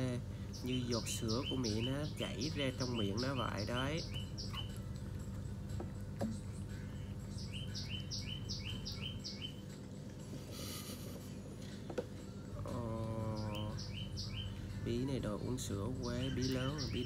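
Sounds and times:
low background hum: 0.0 - 17.0
high falling chirps: 0.5 - 10.1.

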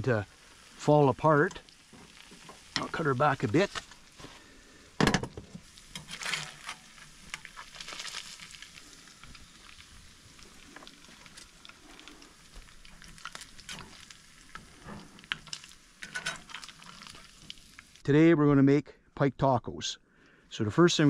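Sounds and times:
oil sizzling and crackling: 0.0 - 18.0
metal spoon scraping pan: 5.9 - 7.5, 15.3 - 17.2.

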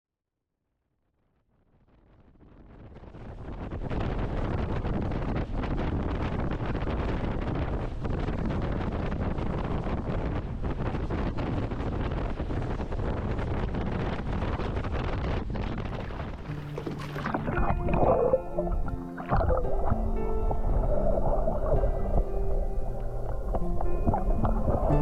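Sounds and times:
wind buffeting microphone: 2.8 - 25.0.

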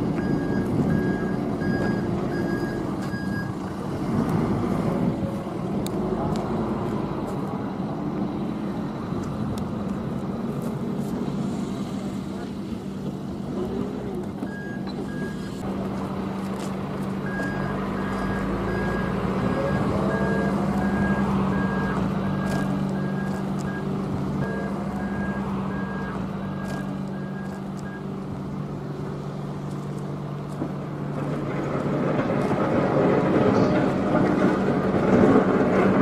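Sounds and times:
backup alarm beeping: 0.0 - 3.6, 14.5 - 15.6, 17.2 - 28.1
diesel engine running: 0.0 - 36.0.

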